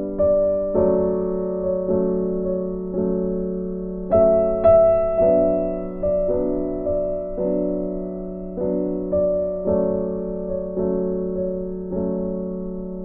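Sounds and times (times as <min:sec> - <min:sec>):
soft slow piano chords: 0:00.0 - 0:13.0.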